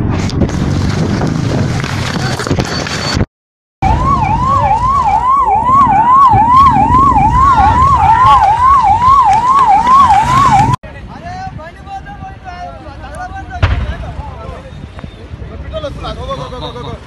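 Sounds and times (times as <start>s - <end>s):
emergency vehicle siren: 3.8s - 10.8s.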